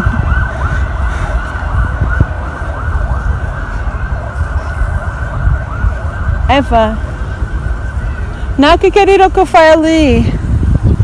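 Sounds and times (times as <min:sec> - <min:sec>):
siren yelping: 0:00.0 - 0:09.4
wind rumble on microphone: 0:00.0 - 0:11.0.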